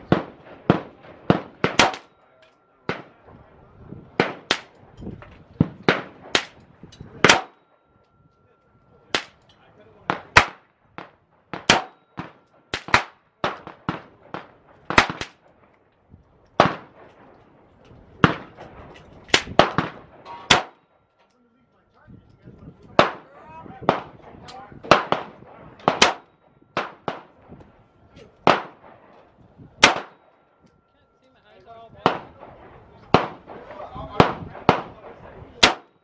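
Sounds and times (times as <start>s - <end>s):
pistol shots: 0.0s - 2.2s, 4.2s - 4.8s, 5.6s - 6.6s, 7.2s - 7.7s, 9.1s - 9.4s, 10.1s - 15.5s, 16.6s - 17.3s, 18.2s - 20.9s, 23.0s - 27.4s, 28.4s - 29.0s, 29.8s - 30.4s, 32.0s - 36.0s.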